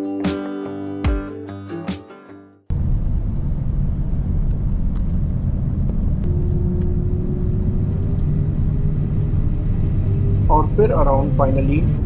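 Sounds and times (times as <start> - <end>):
airplane taxiing rumble: 2.7 - 12.0.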